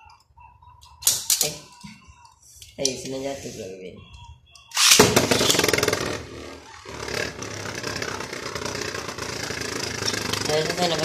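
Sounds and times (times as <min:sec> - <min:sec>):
pull-string launcher: 0:04.7 - 0:08.2.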